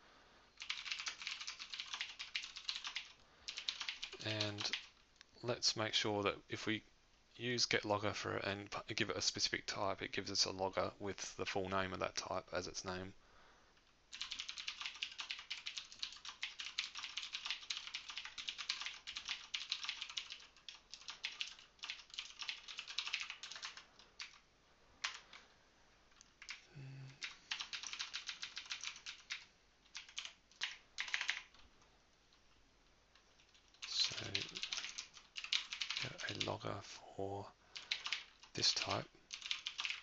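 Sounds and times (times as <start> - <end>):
computer keyboard typing: 0.6 - 5.0, 14.1 - 24.4, 25.0 - 25.4, 26.2 - 26.6, 27.2 - 31.7, 33.1 - 36.6, 37.7 - 40.0.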